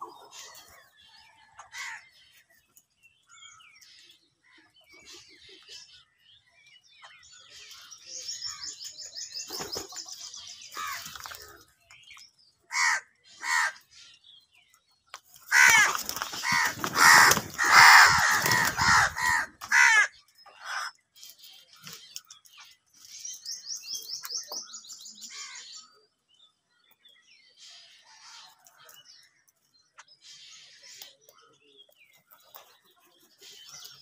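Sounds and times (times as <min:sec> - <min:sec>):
small birds chirping: 0:00.0 - 0:34.0
crows cawing: 0:01.7 - 0:02.0, 0:12.7 - 0:13.8, 0:15.5 - 0:20.9
wings flapping: 0:09.5 - 0:10.0, 0:15.3 - 0:19.8.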